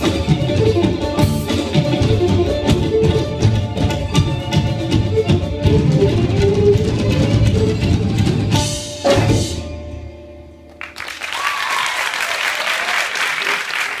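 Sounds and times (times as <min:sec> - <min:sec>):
live band playing: 0:00.0 - 0:11.9
audience applause: 0:10.8 - 0:14.0.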